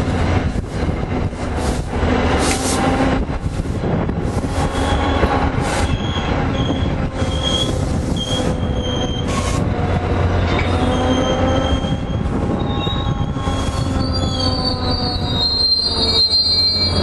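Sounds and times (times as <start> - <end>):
rumble of train wheels on rail: 0.0 - 17.0
high-pitched wheel squeals: 4.6 - 9.6, 10.3 - 17.0.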